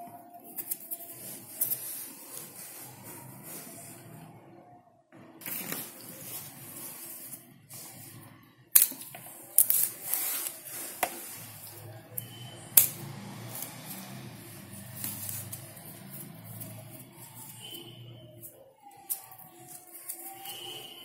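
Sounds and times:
fibrous tearing and rustling: 0:13.0 - 0:21.0.

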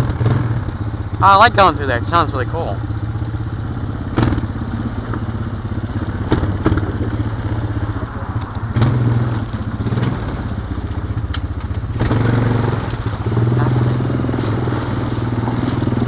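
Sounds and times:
atv engine running at low revs: 0:00.0 - 0:16.0
sharp knocks and clatter: 0:04.1 - 0:04.5, 0:06.0 - 0:07.2.

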